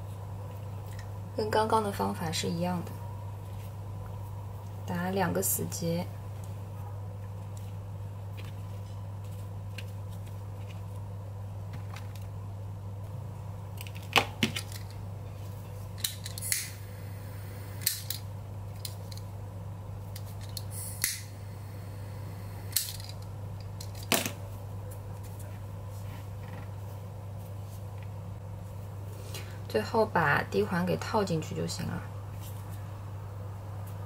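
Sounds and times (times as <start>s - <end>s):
steady low hum: 0.0s - 34.0s
lighter clicking: 16.3s - 16.8s, 20.9s - 21.3s.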